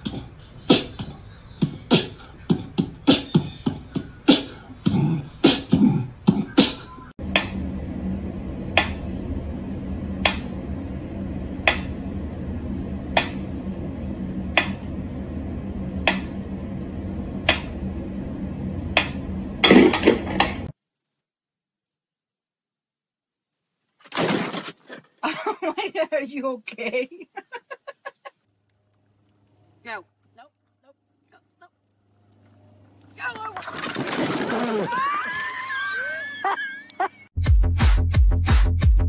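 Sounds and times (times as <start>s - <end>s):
steady low hum: 0.0s - 20.7s, 25.3s - 33.6s.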